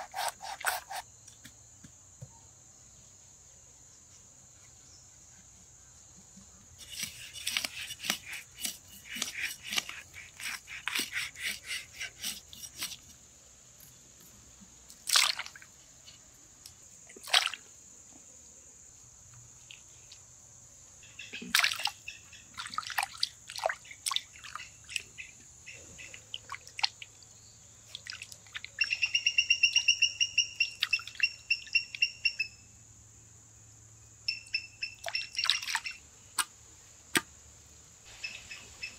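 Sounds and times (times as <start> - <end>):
heavy knife strokes on wood: 0.0 - 1.0, 6.8 - 13.2
knife scraping fish: 0.0 - 1.0, 6.8 - 13.2.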